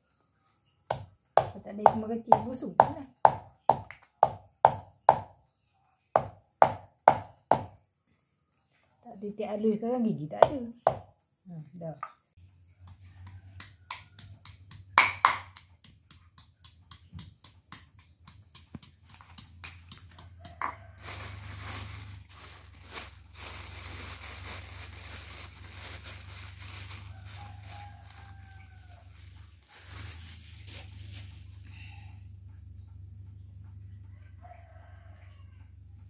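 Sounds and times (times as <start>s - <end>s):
pestle pounding in stone mortar: 13.6s - 20.8s
plastic bag crinkling: 20.6s - 31.7s.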